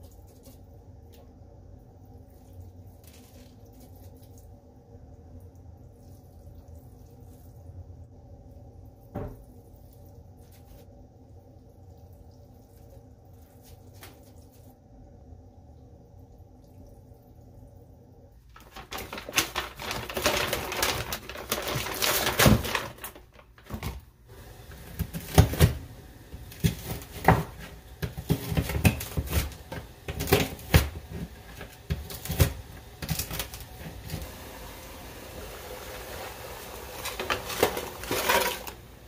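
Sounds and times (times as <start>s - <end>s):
wet noodles rustling in colander: 2.2s - 4.7s, 9.5s - 11.1s, 11.8s - 14.9s, 18.4s - 39.0s.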